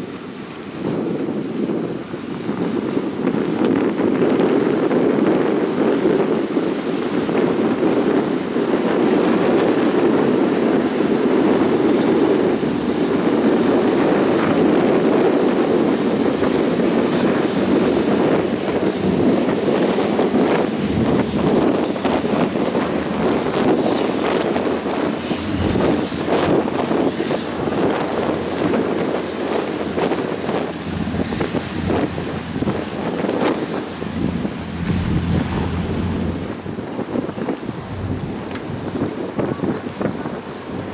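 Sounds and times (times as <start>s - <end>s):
churning wake: 0.0s - 40.9s
wind buffeting microphone: 0.0s - 40.9s
ferry engines rushing: 15.9s - 36.8s.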